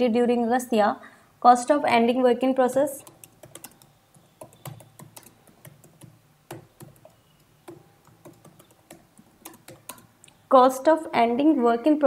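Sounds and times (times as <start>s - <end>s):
keyboard typing: 2.6s - 10.4s.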